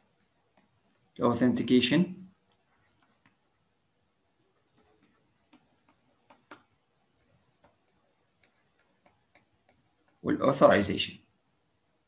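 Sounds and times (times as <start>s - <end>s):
stylus tapping on tablet screen: 0.0s - 1.2s, 2.4s - 3.6s, 4.6s - 10.3s.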